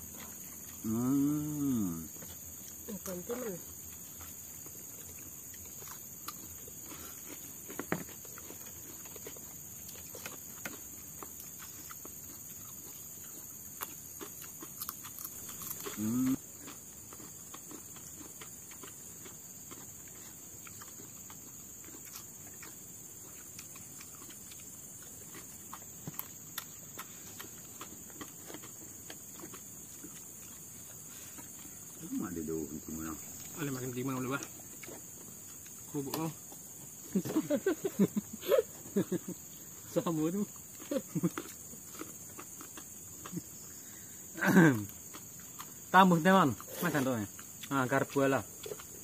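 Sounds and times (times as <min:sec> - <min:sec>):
insects chirring: 0:00.0 - 0:49.0
clicks and clatter of eating: 0:03.9 - 0:30.7.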